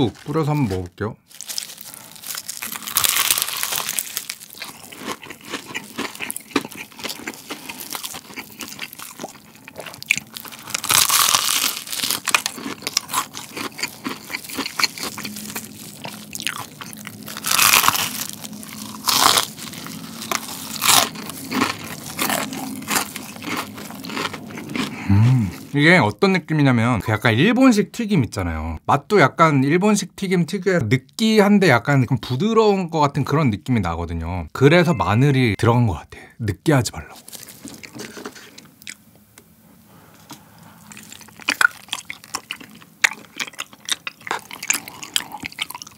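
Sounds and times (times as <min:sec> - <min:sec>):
crunching fried chicken: 0:00.0 - 0:25.8, 0:37.0 - 0:39.0, 0:40.2 - 0:45.9.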